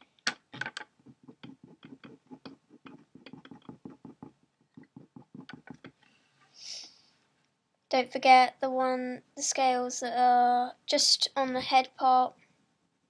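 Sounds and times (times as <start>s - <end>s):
pen scribbling on paper: 1.0s - 5.9s.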